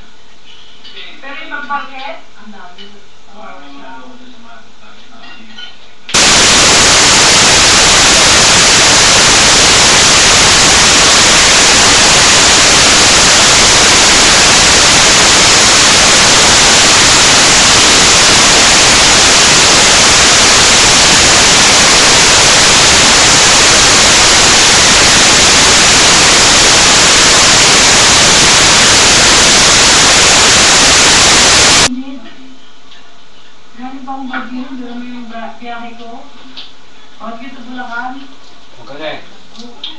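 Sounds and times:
loud static hiss: 0:06.0 - 0:39.9.

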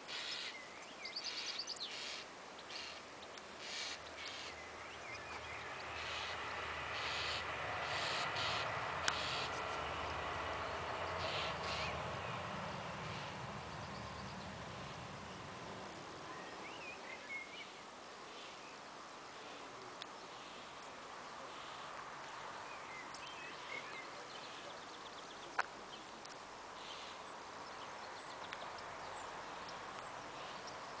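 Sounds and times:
steady background hiss: 0:00.0 - 0:31.0
bird chirps: 0:00.1 - 0:10.1.

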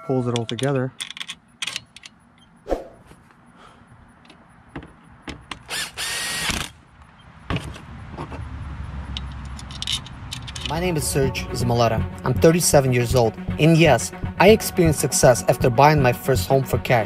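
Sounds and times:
metal parts clicking: 0:00.3 - 0:02.2, 0:09.2 - 0:10.8.

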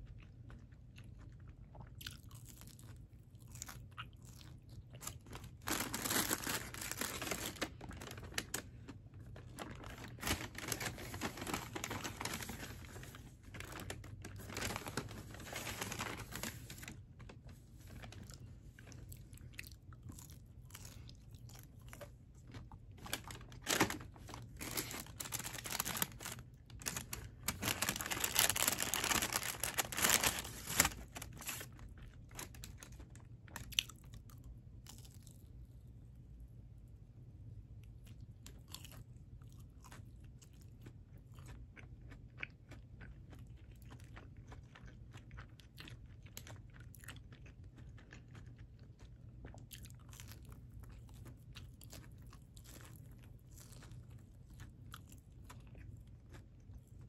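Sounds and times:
person chewing crunchy food: 0:00.0 - 0:35.7, 0:37.8 - 0:57.0.

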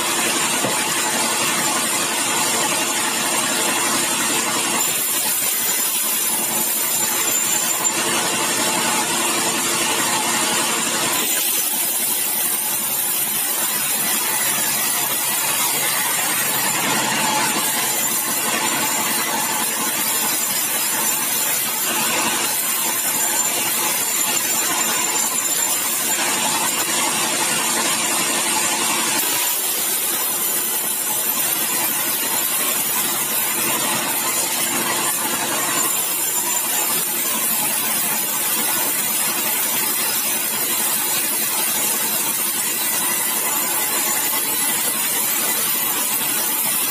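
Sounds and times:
band saw cutting wood: 0:00.0 - 0:46.9.

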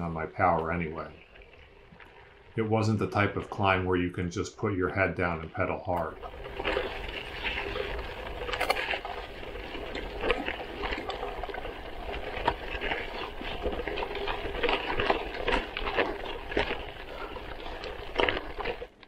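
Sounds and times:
bike tyres crunching on gravel: 0:04.9 - 0:19.0
bike clicks and rattles: 0:06.0 - 0:19.0.

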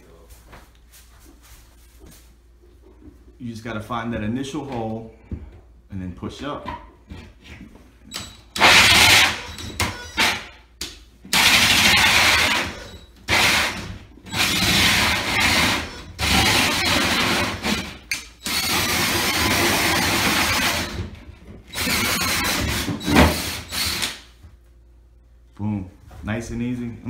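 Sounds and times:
drill with hole saw cutting drywall: 0:08.1 - 0:10.6, 0:11.3 - 0:24.2.

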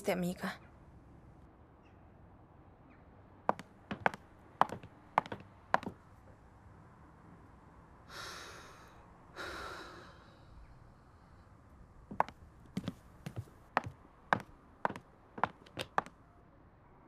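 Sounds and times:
footsteps on wooden floor: 0:03.5 - 0:06.0, 0:12.1 - 0:16.1
woman sighing: 0:08.1 - 0:10.4.

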